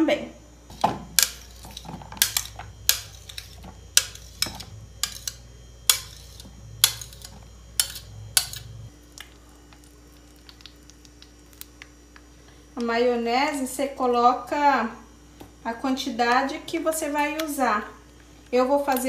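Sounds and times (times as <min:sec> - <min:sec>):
utensil clinking against bowl: 0:01.2 - 0:08.8.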